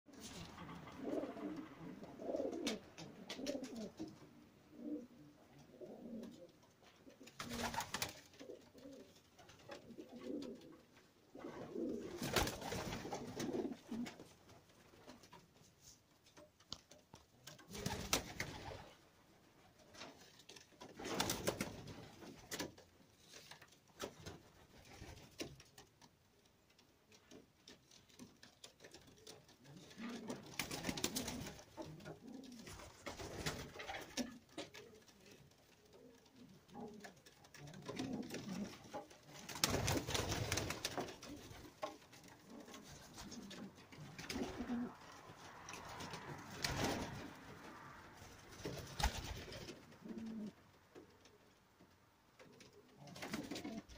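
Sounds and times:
pigeons cooing: 0.2 - 6.6, 42.4 - 45.0, 49.8 - 50.6.

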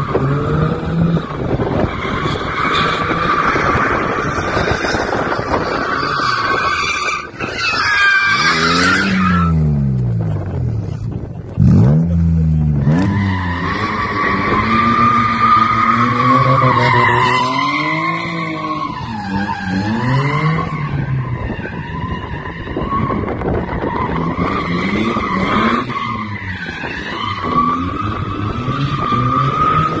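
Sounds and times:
tyre squeal: 1.8 - 9.8
car engine revving: 8.4 - 21.4.

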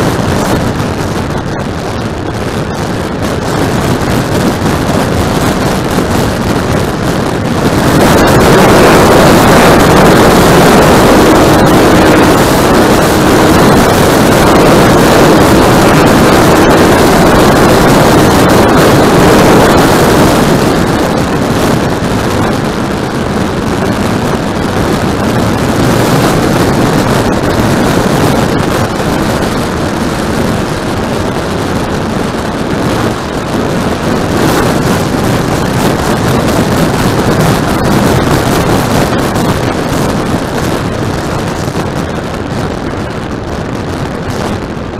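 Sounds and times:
propeller motor running: 0.0 - 44.9
wind rushing over microphone: 0.0 - 44.9.

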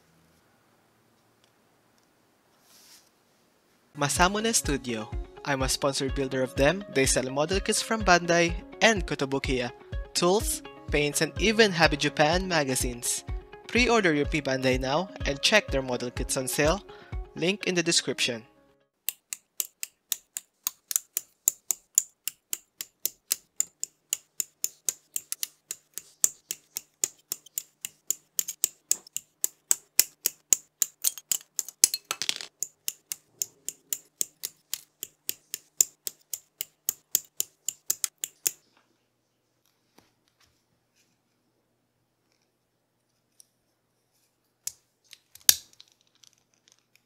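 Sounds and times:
nippers snipping plastic: 19.1 - 31.9, 32.6 - 38.6, 44.7 - 47.0.

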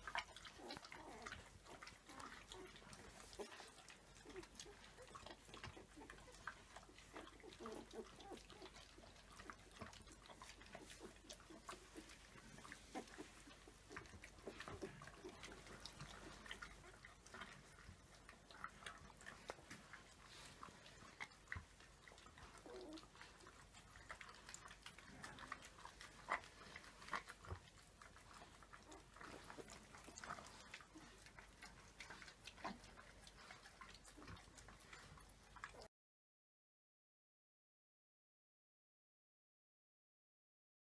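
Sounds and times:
dog eating from steel bowl: 0.0 - 35.9
puppies squeaking: 0.1 - 20.2, 20.9 - 24.2.

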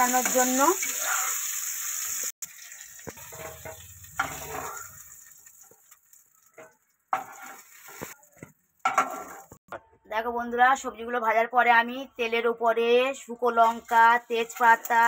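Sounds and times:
vegetables sizzling in hot oil: 0.0 - 9.6, 13.5 - 15.0
metal spatula clinks and scrapes: 3.2 - 5.0, 6.5 - 8.0.

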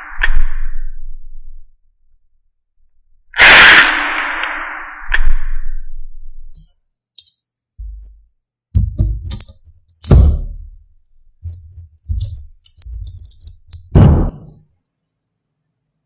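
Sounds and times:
magnet balls clicking and rattling: 6.6 - 10.8, 11.4 - 14.0
dull thump: 10.0 - 10.8, 13.9 - 14.6.

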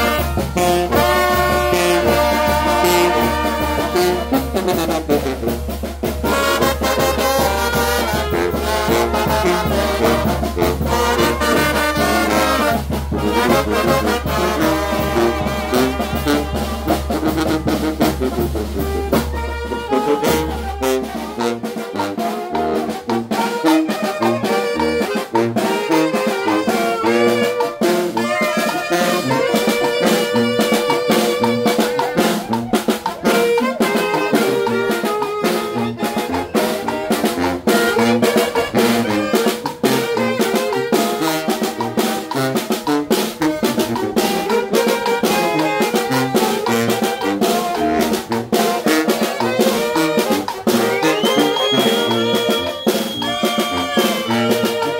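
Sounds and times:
bass drum: 0.0 - 21.6, 26.5 - 54.9
brass band playing: 0.0 - 54.9
snare drum: 0.0 - 54.9.

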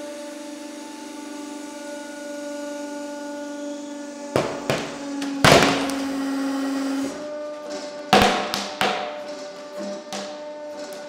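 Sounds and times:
hydraulic press humming: 0.1 - 11.0
sharp cracks: 4.4 - 6.3, 8.2 - 10.4
books bursting with a loud bang: 4.4 - 6.4, 8.2 - 9.3.

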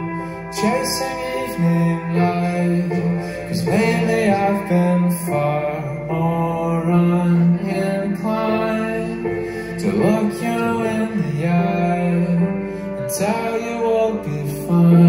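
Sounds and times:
live band playing slow song: 0.0 - 15.0
person singing: 0.0 - 15.0.

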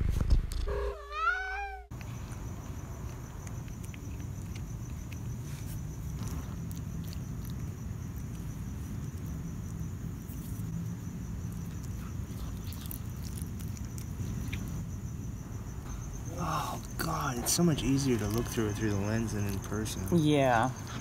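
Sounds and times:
cricket trill: 0.7 - 21.0
cat chewing wet crunches: 1.9 - 15.3, 16.8 - 20.1.

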